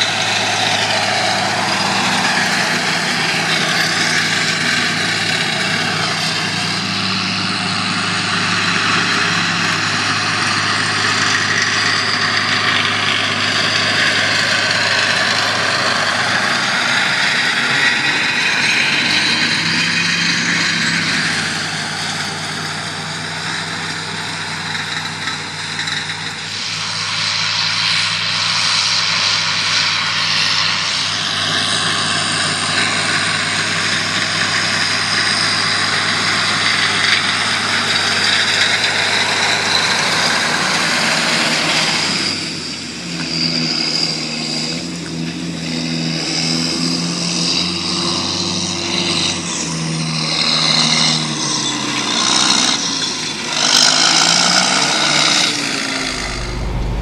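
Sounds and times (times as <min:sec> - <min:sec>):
tractor diesel engine running: 0:00.0 - 0:57.0
cultivator rushing through soil: 0:30.9 - 0:46.6.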